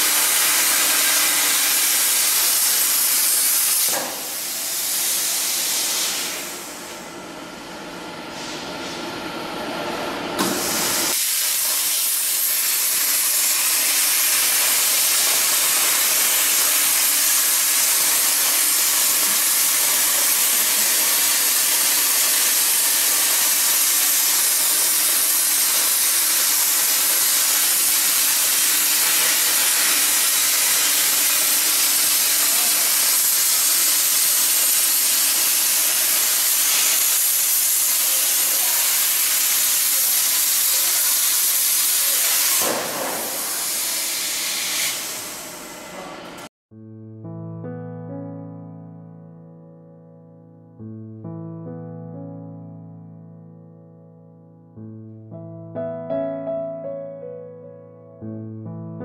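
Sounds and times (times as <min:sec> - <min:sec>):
plasma cutter hissing: 0:00.0 - 0:06.8, 0:10.4 - 0:46.5.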